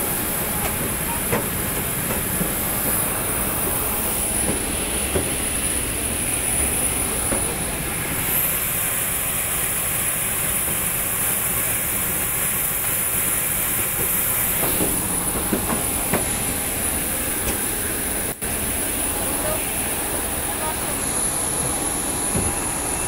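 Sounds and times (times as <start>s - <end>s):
jet engines roaring: 0.0s - 23.0s
footsteps on metal steps: 0.2s - 5.8s.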